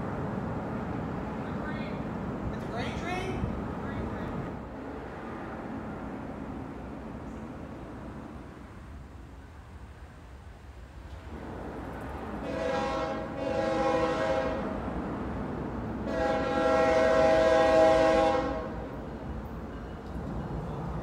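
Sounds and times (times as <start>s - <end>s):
train rumbling: 0.0s - 21.0s
locomotive air horn blasts: 12.4s - 14.8s, 16.0s - 18.9s.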